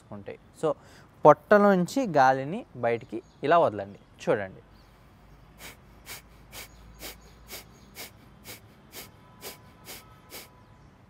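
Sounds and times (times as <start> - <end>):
forceful nasal exhalations: 5.6 - 10.6.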